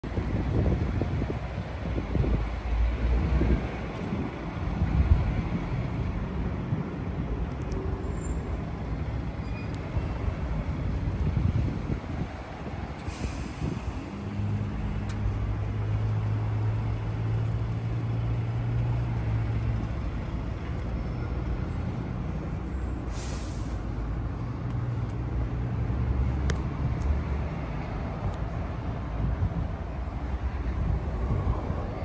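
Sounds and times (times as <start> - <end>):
short hisses: 13.0 - 14.1, 23.1 - 23.9.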